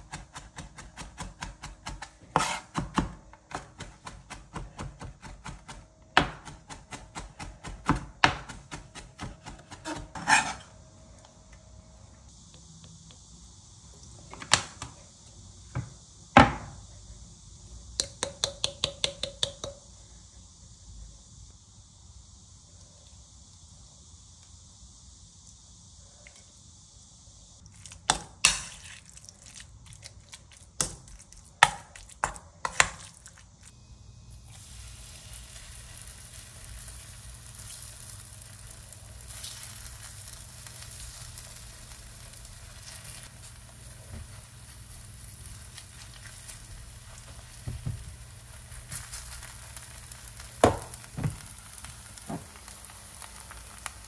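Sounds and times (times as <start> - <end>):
knife chopping on cutting board: 0.0 - 10.6
food sizzling in a pan: 0.0 - 10.8, 20.9 - 54.0.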